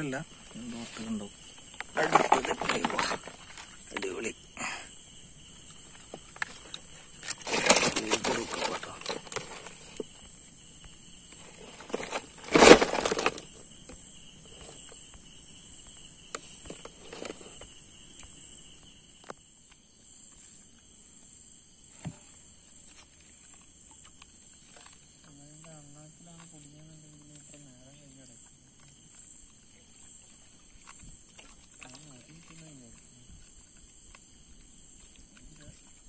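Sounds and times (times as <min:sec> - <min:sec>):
night insects trilling: 0:00.0 - 0:36.0.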